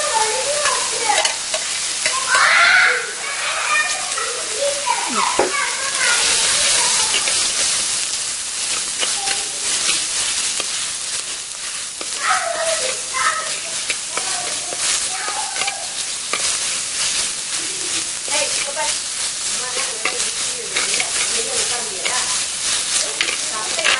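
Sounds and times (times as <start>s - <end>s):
onions sizzling in hot oil: 0.0s - 23.9s
metal ladle scraping and tapping pot: 0.6s - 2.2s, 7.1s - 7.8s, 12.8s - 16.7s, 19.7s - 23.9s.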